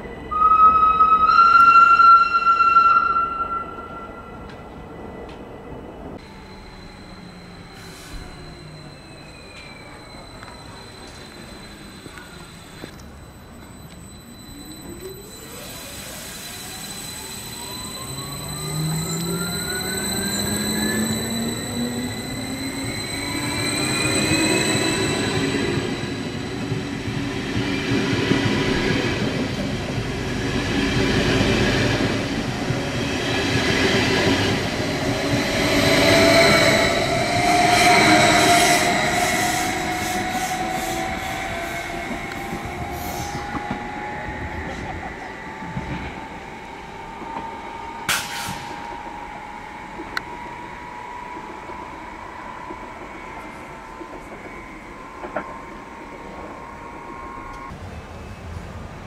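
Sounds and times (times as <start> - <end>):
wheel squeal: 6.2 - 29.6, 31.4 - 49.0.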